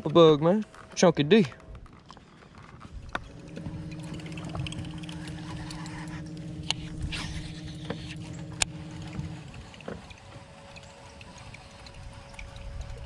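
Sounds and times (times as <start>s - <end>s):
electric motor humming: 2.9s - 13.0s.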